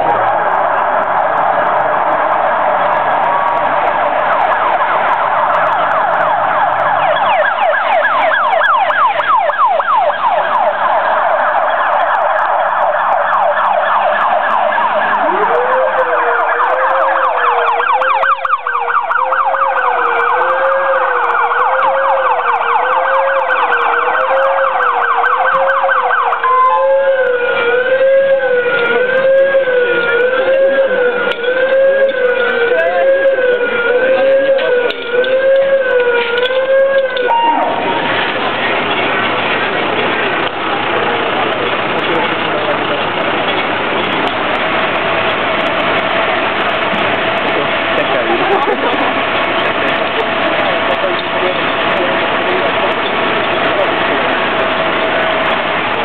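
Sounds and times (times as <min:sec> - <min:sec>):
high wavering siren: 0:00.0 - 0:38.4
low wavering siren: 0:00.0 - 0:38.6, 0:43.6 - 0:56.0
fast yelping siren: 0:00.1 - 0:38.2.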